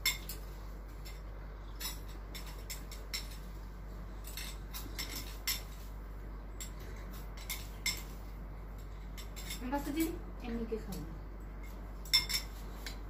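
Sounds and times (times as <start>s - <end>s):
cutlery clinking on dishes: 4.2s - 5.9s, 6.6s - 8.1s, 11.7s - 13.0s.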